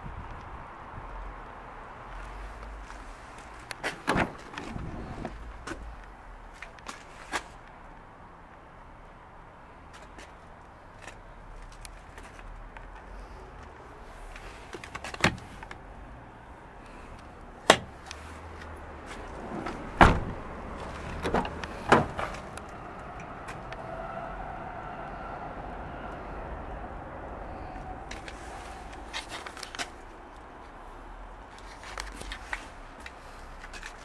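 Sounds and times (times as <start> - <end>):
car doors clunking: 3.8 - 5.8, 17.6 - 18.1, 19.3 - 22.6.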